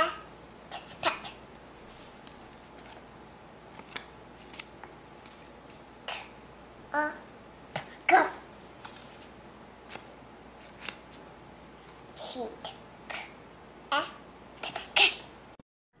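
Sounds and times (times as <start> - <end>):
young child vocal sounds: 0.0 - 1.4, 6.0 - 8.5, 12.2 - 15.3
paper cards rustling: 1.6 - 5.9, 8.6 - 12.1.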